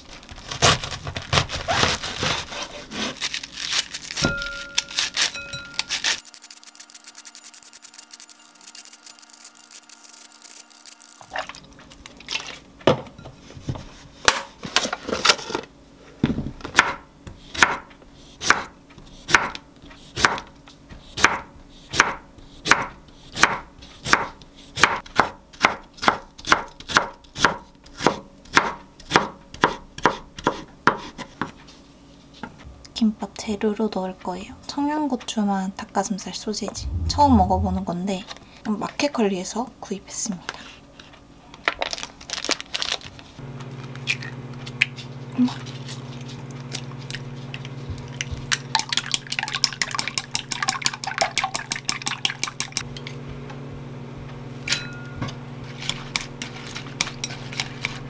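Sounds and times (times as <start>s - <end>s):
peeler shaving cabbage: 0.0s - 11.6s, 55.6s - 58.0s.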